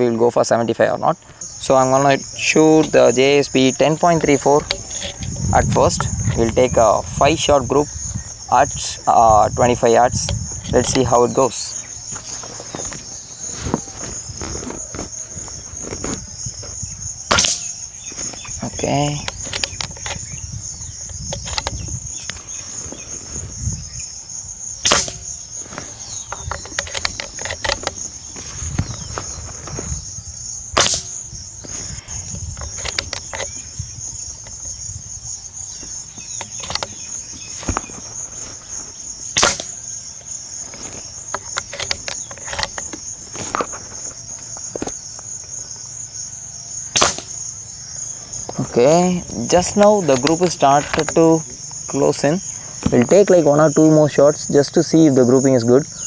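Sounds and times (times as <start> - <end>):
crickets chirring: 0.0 - 56.0
air rifle shots: 17.3 - 17.7, 24.8 - 25.4, 30.7 - 31.2, 39.3 - 39.8, 46.9 - 47.4.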